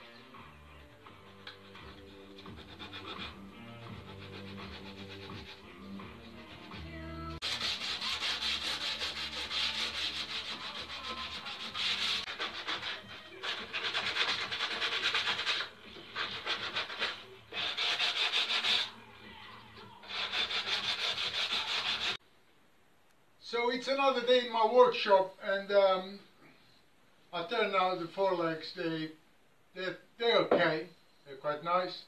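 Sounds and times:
sandpaper rubbing on wood: 1.8 - 5.7, 7.4 - 18.9, 20.0 - 22.2.

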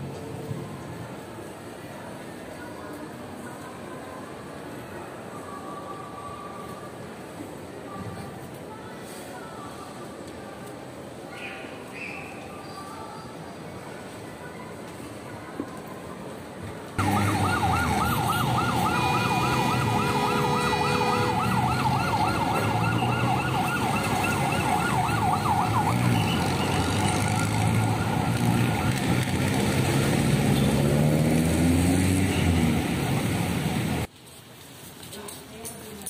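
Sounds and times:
traffic rumble: 15.7 - 35.9
siren yelping: 17.0 - 29.3
vehicle engine rising in pitch: 17.0 - 33.8.

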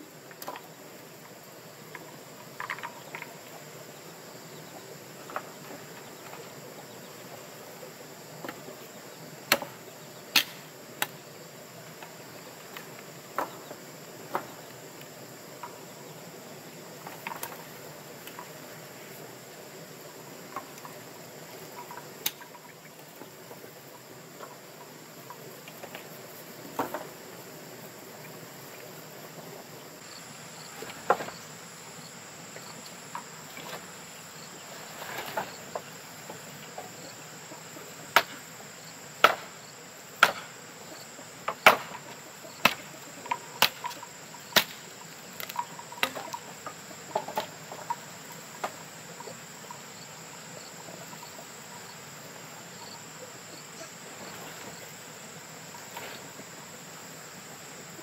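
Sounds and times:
high-pitched insect drone: 42.1 - 58.0.

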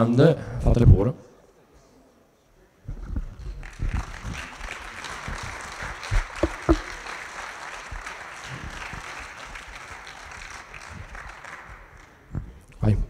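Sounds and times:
audience applauding: 3.6 - 12.3
loud thumps: 6.4 - 7.0.

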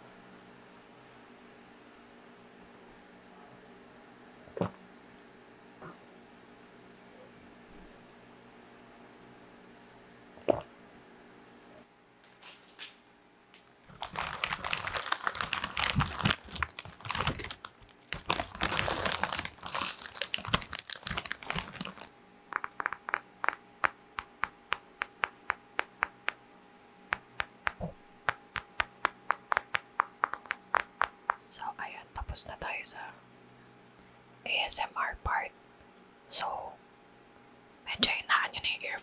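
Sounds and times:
chip bag crinkling: 13.6 - 26.3, 28.3 - 31.5
tapping on a smartphone: 22.5 - 26.4, 27.1 - 31.5.

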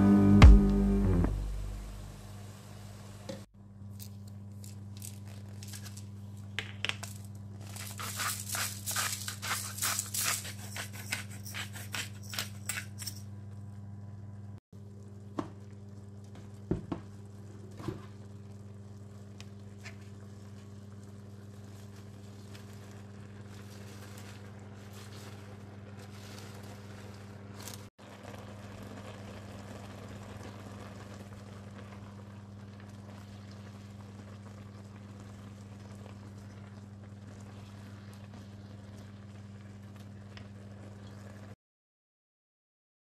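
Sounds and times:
steady low hum: 0.0 - 9.2
pepper mill grinding: 4.0 - 13.3.

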